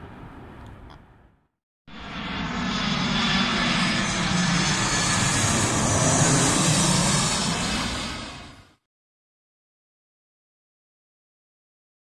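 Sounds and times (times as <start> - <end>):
jet airliner passing low: 1.9 - 8.9.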